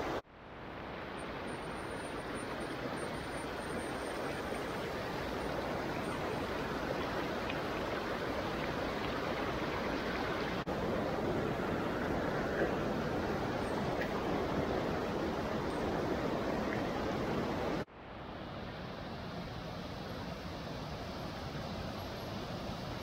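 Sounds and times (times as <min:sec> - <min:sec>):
stream water over rocky rapids: 0:00.0 - 0:17.9.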